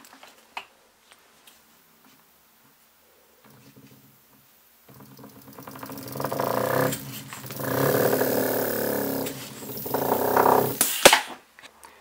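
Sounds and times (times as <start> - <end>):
model air engine puffing: 4.9 - 11.1.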